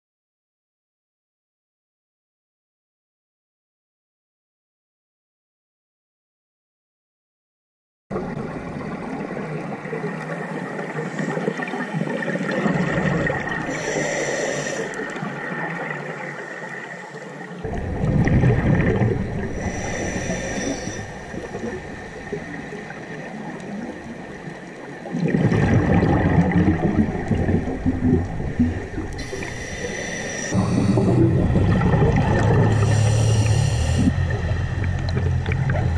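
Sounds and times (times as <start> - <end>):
underwater water noise: 8.1 - 35.9
bubbling exhaled air: 11.1 - 15.2, 17.6 - 24.3, 25.0 - 35.9
scuba regulator hissing breath: 13.7 - 15.1, 19.5 - 23.0, 29.2 - 31.2, 32.7 - 34.2.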